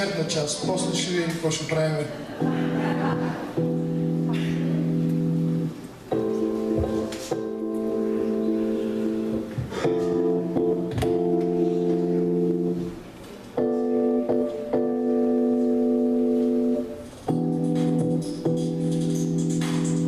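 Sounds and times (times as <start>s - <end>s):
slow held chords: 2.4s - 13.0s, 13.6s - 20.0s.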